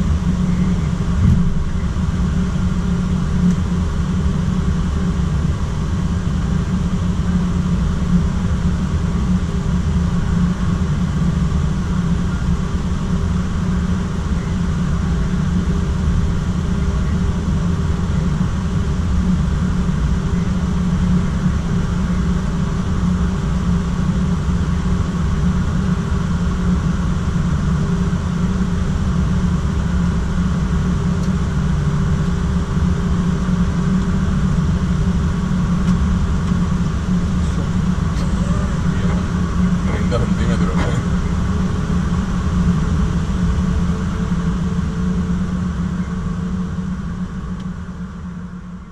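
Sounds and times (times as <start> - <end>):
airliner engines idling: 0.0 - 48.9.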